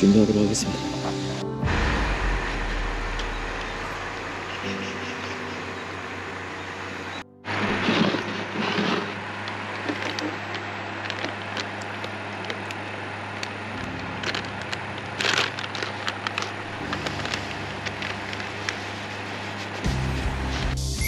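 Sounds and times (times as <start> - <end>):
low background hum: 0.0 - 20.7
fishing gear clicking and rustling: 7.5 - 19.0.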